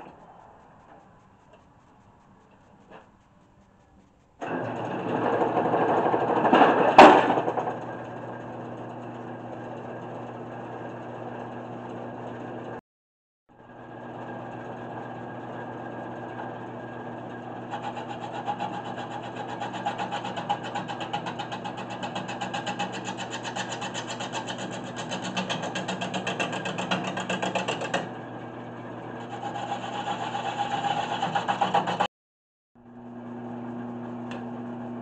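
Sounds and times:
turning tool ticking on wood: 0.0s - 4.4s, 17.6s - 28.1s, 29.3s - 32.1s
lathe motor humming: 7.6s - 12.8s, 13.6s - 32.1s.

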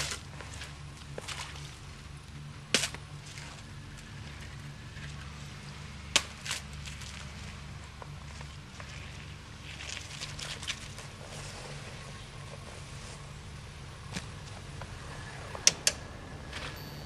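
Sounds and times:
idling engines hum: 0.0s - 17.0s
wooden pole cracking ice: 2.7s - 3.6s.

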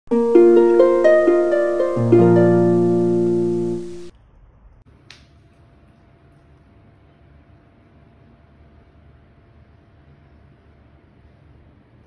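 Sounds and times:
plucked string intro music: 0.1s - 4.1s
faint room hiss: 0.1s - 12.0s.

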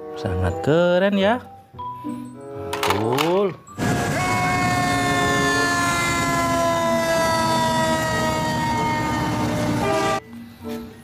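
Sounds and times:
fire truck siren: 3.8s - 10.2s
truck engine rumble: 3.8s - 10.2s.

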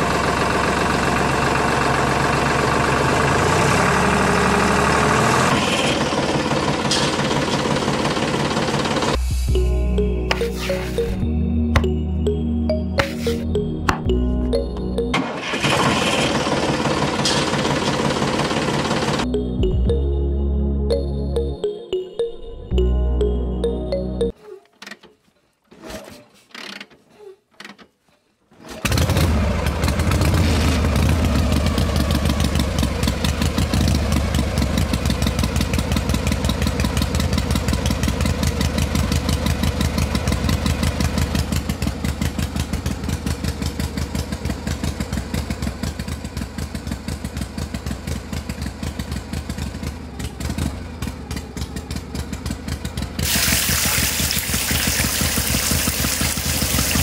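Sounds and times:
small engine chugging: 0.0s - 9.2s, 15.5s - 19.2s, 28.8s - 57.0s
liquid pouring with hiss: 53.2s - 57.0s.

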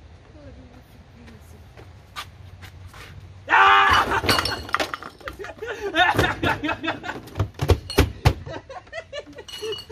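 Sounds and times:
laughter: 5.2s - 7.5s, 8.4s - 9.9s.

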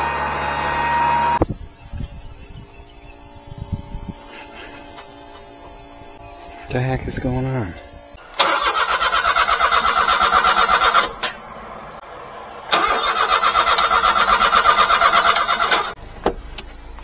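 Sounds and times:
starter motor cranking engine: 8.3s - 11.2s, 12.7s - 16.0s.

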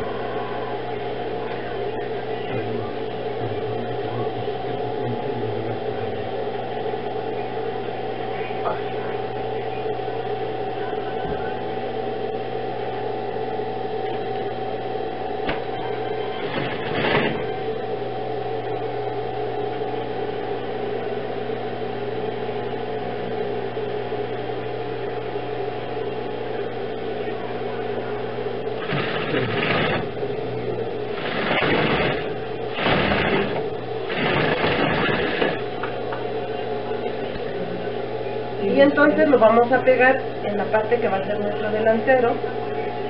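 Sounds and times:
sewing machine stitching: 16.4s - 17.5s, 28.8s - 30.1s, 31.1s - 35.6s.

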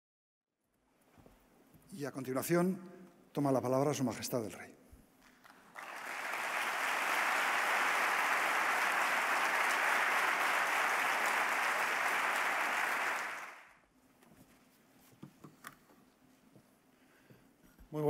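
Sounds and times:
audience applause: 5.3s - 13.8s.

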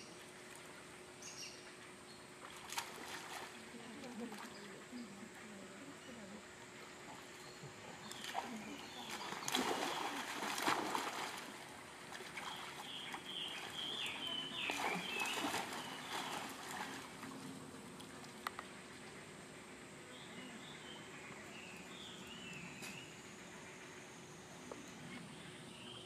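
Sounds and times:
water splashing: 2.4s - 4.6s, 8.1s - 18.4s.

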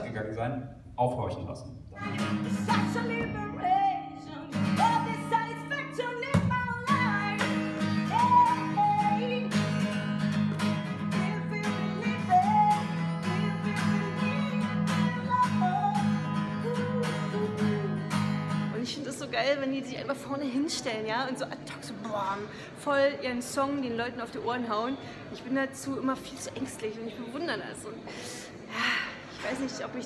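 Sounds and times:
strummed acoustic guitar: 2.0s - 3.8s, 4.5s - 18.8s
woman singing: 2.0s - 10.0s, 10.9s - 22.1s.

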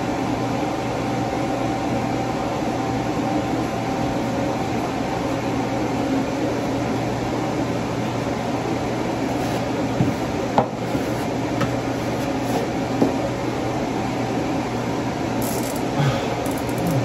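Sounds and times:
fan-like hum: 0.0s - 17.0s.

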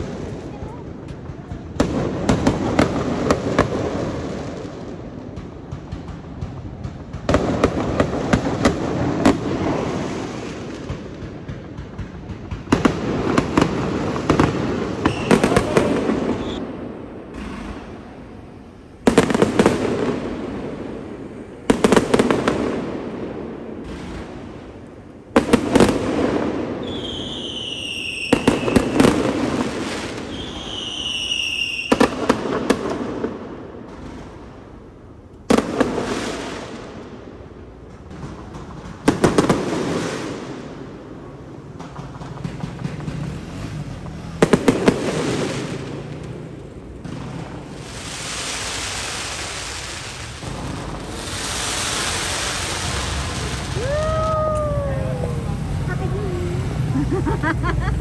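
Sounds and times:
fireworks bangs and crackling: 0.0s - 58.0s
falling firework whistles: 12.6s - 17.9s, 26.7s - 32.7s, 47.3s - 55.5s.

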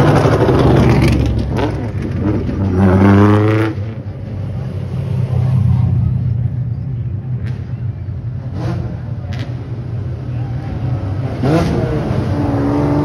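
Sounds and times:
race car engine revving: 0.0s - 4.1s, 10.6s - 13.0s.

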